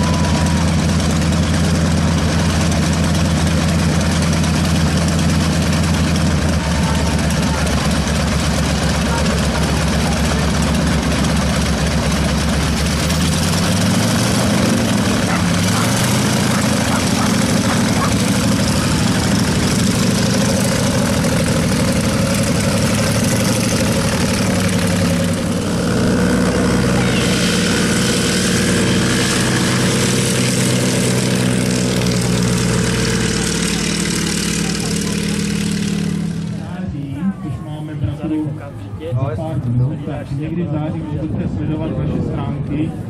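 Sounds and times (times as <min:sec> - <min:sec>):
propeller engine running: 0:00.0 - 0:43.0.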